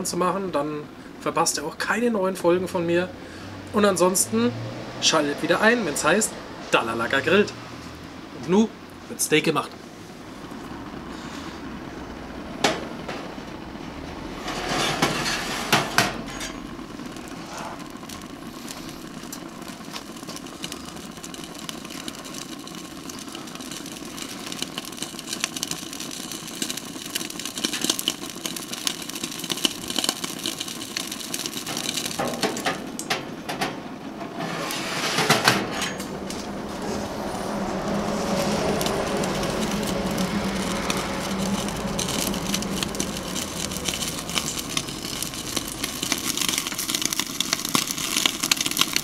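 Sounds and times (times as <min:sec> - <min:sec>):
gas burner hissing: 0:00.0 - 0:49.0
steak sizzling and crackling: 0:13.9 - 0:33.1, 0:34.4 - 0:49.0.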